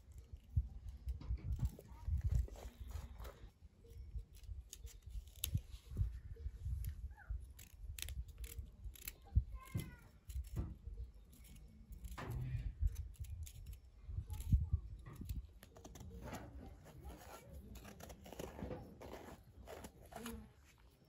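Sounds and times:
knife cutting broccoli: 15.2s - 20.4s.

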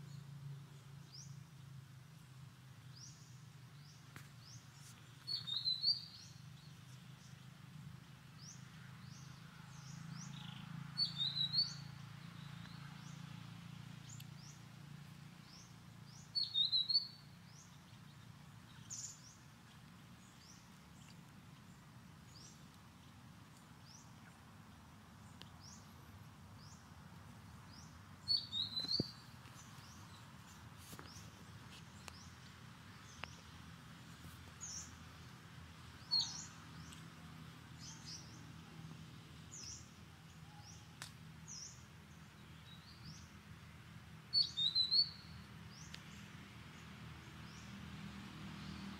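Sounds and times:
high quick chirping calls: 28.3s - 30.3s.

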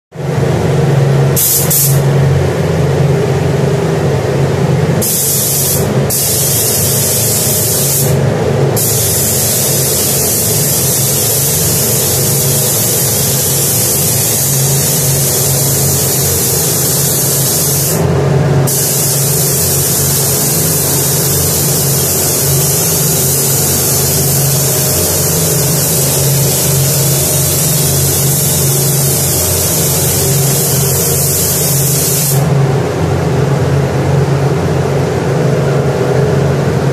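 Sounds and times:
spray gun hissing: 1.4s - 2.1s, 5.0s - 8.2s, 8.8s - 32.6s.

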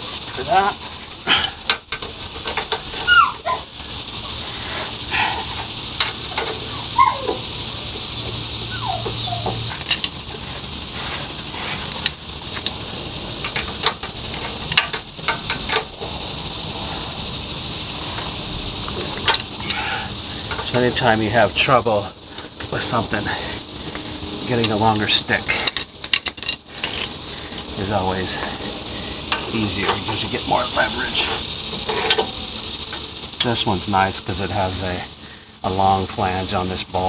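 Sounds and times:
high whines sliding down: 2.0s - 25.4s
ratchet wrench clicking: 5.5s - 8.4s, 11.9s - 16.2s, 23.8s - 28.6s, 29.2s - 33.6s.

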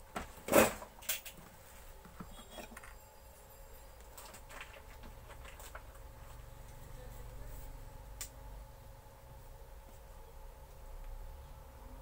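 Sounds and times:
small clicks and rattles: 4.0s - 6.1s.

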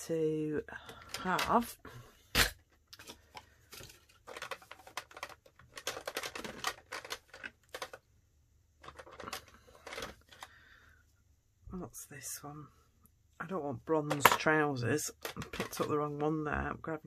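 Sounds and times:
plastic marker pens clattering: 0.6s - 8.1s, 8.8s - 10.6s, 13.9s - 16.7s.

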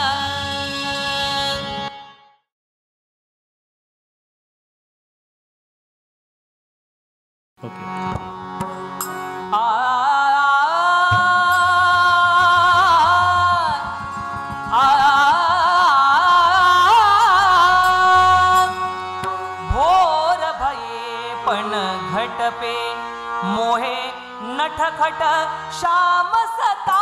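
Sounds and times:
instrumental accompaniment: 7.6s - 27.0s
man singing: 8.6s - 14.0s, 14.7s - 27.0s.

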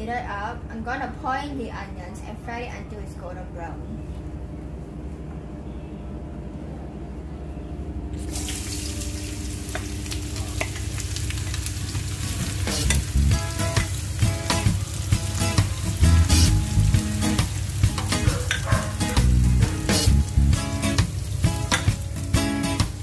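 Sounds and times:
onions sizzling in hot oil: 8.2s - 23.0s.

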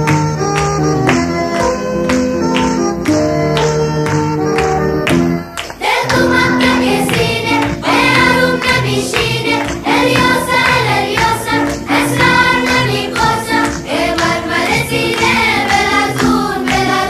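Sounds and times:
song with singing voices: 5.6s - 17.0s.

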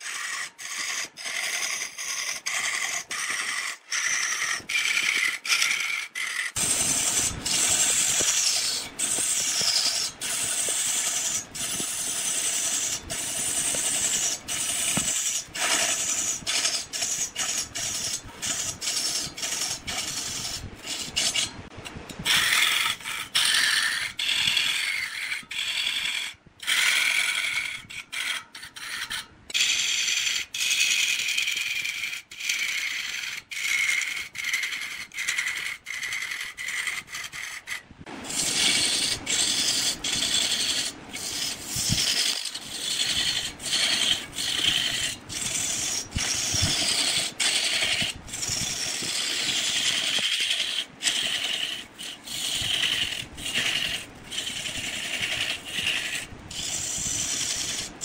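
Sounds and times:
lathe tool cutting wood: 3.4s - 21.5s, 38.2s - 57.9s.

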